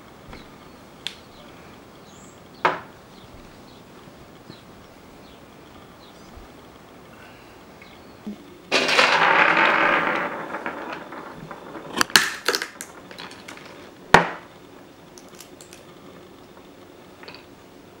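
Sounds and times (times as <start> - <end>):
nut shell cracking: 12.0 - 13.5, 15.2 - 15.9
nutcracker clicks: 15.2 - 15.9.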